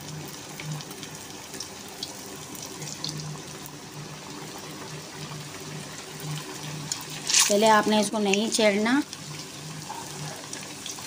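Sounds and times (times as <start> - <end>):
food sizzling in hot oil: 0.0 - 11.0
oil crackling: 6.9 - 8.6.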